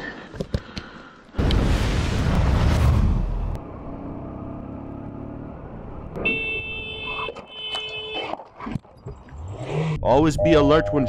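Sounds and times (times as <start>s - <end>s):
fiery whoosh effect: 1.4s - 3.6s
city traffic: 3.3s - 11.0s
motorcycle engine: 3.6s - 6.4s
vehicle horn blasts: 6.2s - 8.3s.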